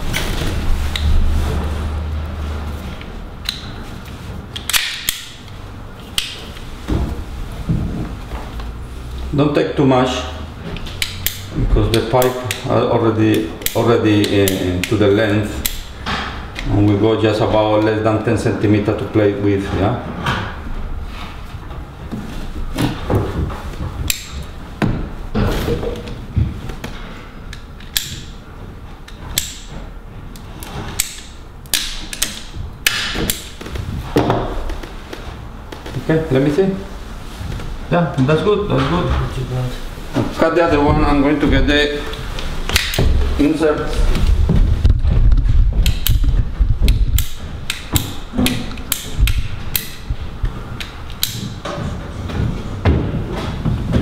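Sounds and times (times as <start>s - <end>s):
rustling of pipes: 0.0s - 54.0s
pipe shears clicking: 3.0s - 6.7s, 10.7s - 18.0s, 24.0s - 24.6s, 26.8s - 28.4s, 29.0s - 33.8s, 42.0s - 43.2s, 45.8s - 51.8s
ratcheting pipe cutter clicking: 10.8s - 12.7s, 15.6s - 15.9s, 31.0s - 33.5s, 45.8s - 50.0s.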